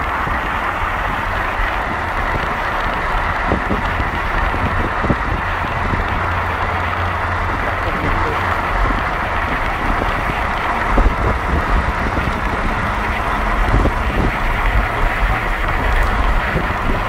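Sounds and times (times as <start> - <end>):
engine and tyre rumble: 0.0 - 17.0
road and wind noise: 0.0 - 17.0.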